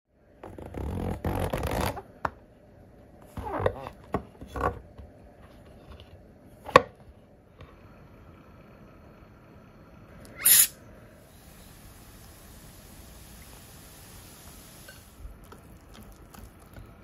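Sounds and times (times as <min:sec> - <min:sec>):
sharp click: 0:10.2 - 0:10.8.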